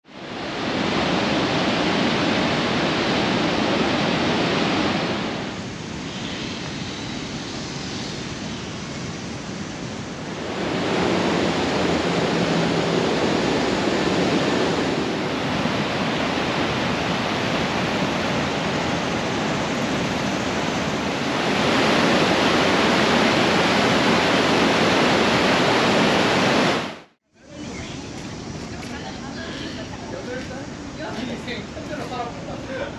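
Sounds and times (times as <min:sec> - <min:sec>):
rushing waterfall and rapids: 0:00.1 - 0:06.8, 0:10.2 - 0:28.6.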